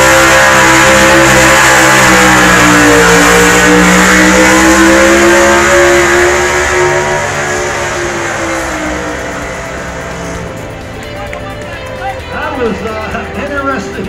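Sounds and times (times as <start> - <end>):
truck diesel engine roaring: 0.0 - 14.0.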